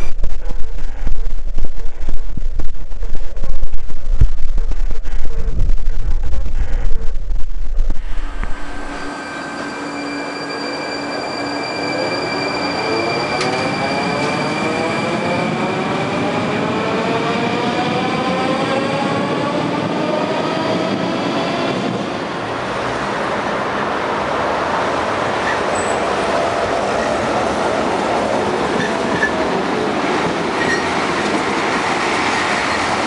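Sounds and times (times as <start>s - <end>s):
tram rushing along track: 8.0s - 33.0s.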